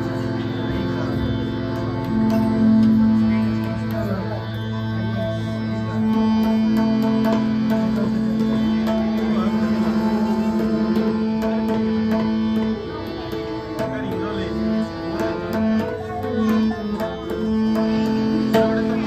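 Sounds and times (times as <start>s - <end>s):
melodic instrument notes: 0.0s - 19.0s
tabla strokes: 0.0s - 19.0s.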